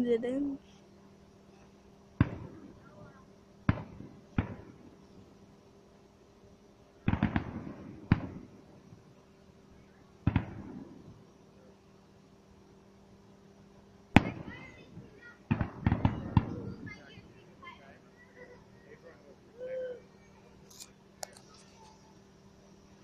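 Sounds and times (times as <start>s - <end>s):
firework shells bursting: 2.2s - 2.8s, 3.6s - 5.2s, 7.0s - 8.6s, 10.2s - 11.2s, 14.2s - 14.9s, 15.5s - 16.8s.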